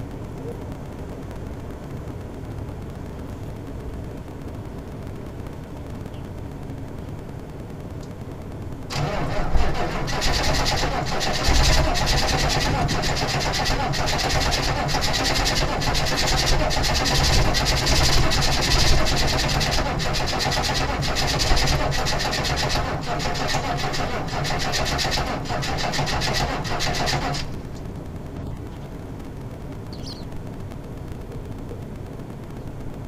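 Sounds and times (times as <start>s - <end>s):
diesel engine cranking: 8.9s - 27.5s.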